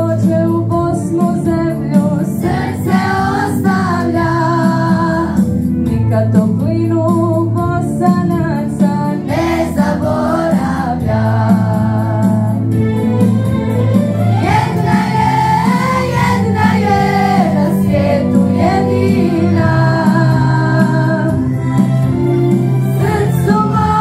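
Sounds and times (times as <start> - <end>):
instrumental accompaniment: 0.0 - 24.0
children's choir singing: 2.4 - 4.4, 9.3 - 11.7, 14.4 - 20.2, 23.0 - 24.0.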